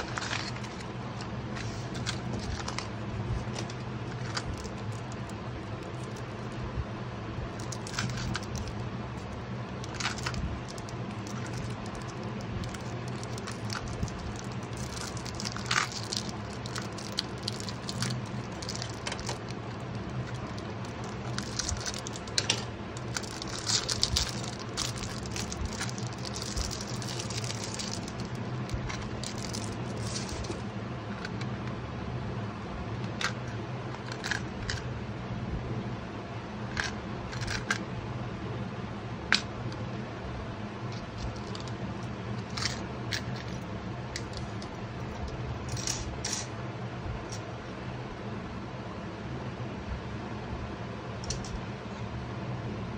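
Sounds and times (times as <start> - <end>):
steady low hum: 0.0 - 52.9
plastic wrap crinkling: 1.6 - 6.6, 7.5 - 30.6, 44.2 - 46.4.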